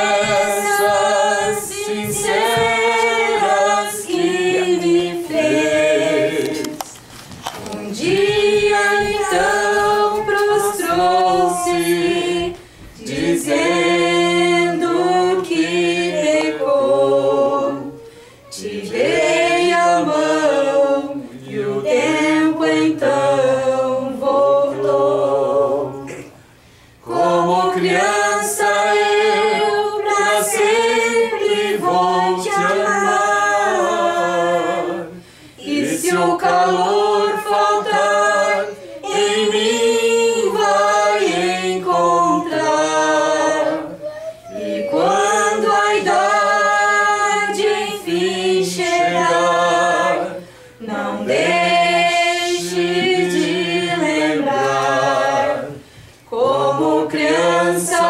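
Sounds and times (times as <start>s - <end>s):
group of people singing: 0.0s - 58.0s.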